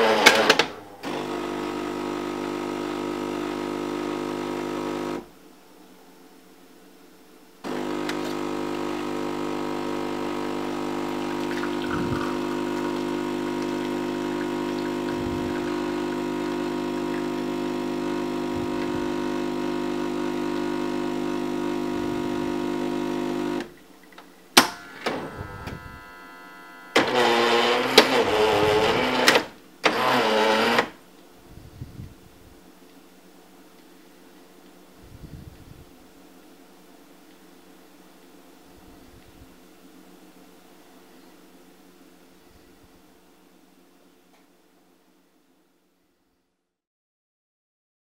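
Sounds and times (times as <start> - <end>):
espresso machine pump buzzing: 0.0 - 5.3, 7.7 - 23.7, 24.7 - 31.0
wavering mechanical noise: 24.8 - 29.4.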